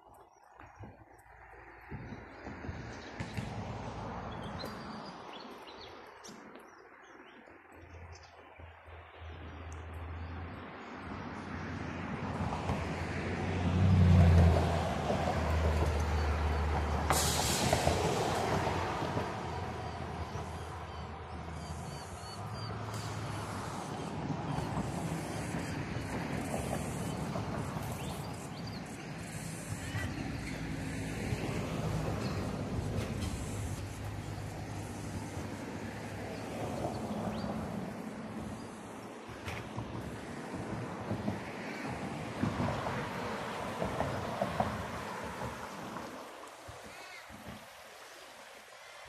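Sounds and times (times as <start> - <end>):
road traffic hum: 0.0 - 49.0
tyre noise from cars: 0.3 - 7.4, 10.2 - 48.2
birds chirping and whistling: 21.6 - 23.2
steady hiss: 24.6 - 30.8, 32.2 - 36.2.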